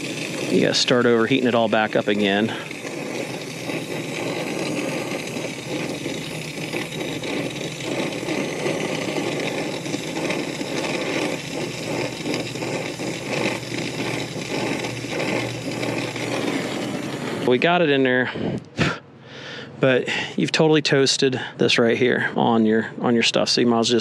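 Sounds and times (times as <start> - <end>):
torch flame hissing: 0.0 - 19.0
low machine hum: 0.0 - 20.5.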